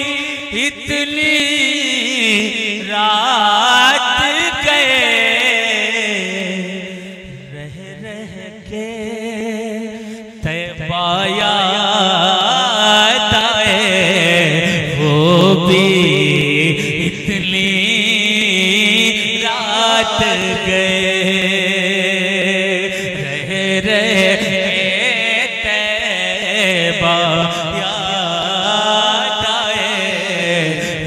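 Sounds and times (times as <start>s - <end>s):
man singing chant through pa: 0.0s - 31.0s.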